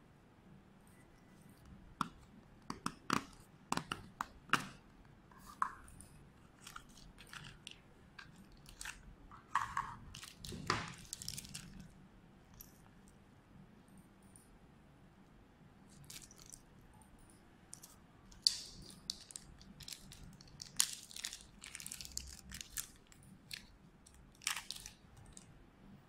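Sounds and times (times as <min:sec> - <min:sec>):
plastic bag crinkling: 0:06.6 - 0:11.9, 0:16.0 - 0:16.6, 0:18.4 - 0:25.5.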